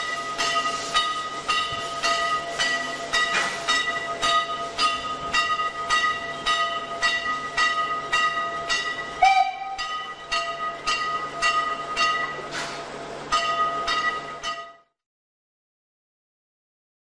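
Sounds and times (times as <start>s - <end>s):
steam locomotive chuffing: 0.0s - 14.7s
steam whistle blast: 9.2s - 10.2s.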